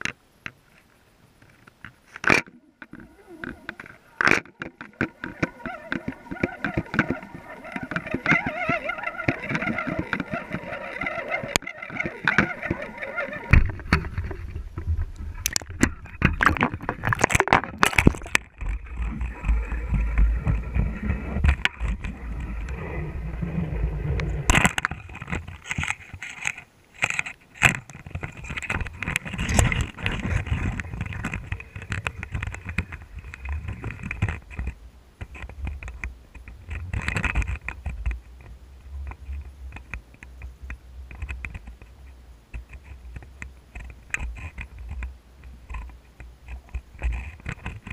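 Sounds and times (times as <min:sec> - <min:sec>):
steady whine: 0:02.4 - 0:26.2
underwater water flow rumble: 0:02.9 - 0:25.3.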